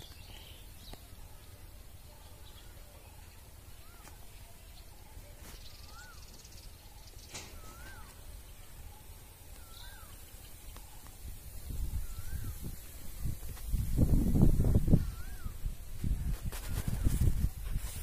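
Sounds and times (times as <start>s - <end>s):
bird whistled call: 5.7s - 6.5s, 7.2s - 8.3s, 9.5s - 10.3s, 11.9s - 13.0s, 14.9s - 15.7s.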